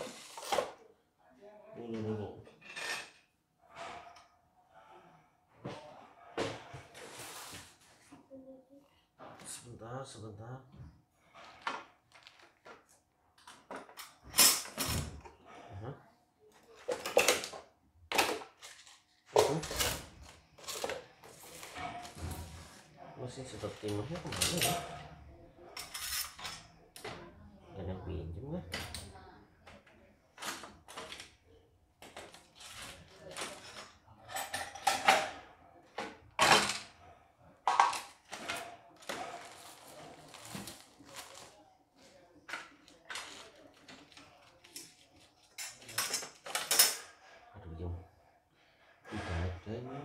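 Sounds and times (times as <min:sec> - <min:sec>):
tools knocking and clattering: 0:32.0 - 0:36.9, 0:45.5 - 0:47.1.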